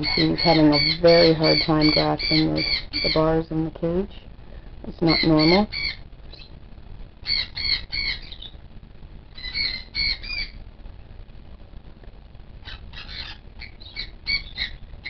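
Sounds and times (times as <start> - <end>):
cockatoo squawking: 0.0 - 3.3, 5.0 - 6.5, 7.2 - 8.6, 9.3 - 10.6, 12.6 - 15.0.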